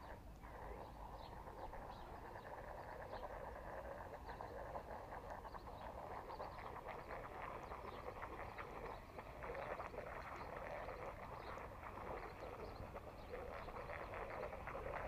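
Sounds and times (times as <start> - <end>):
faint bird chirps: 0.0 - 15.0
wind rumble on microphone: 0.0 - 15.0.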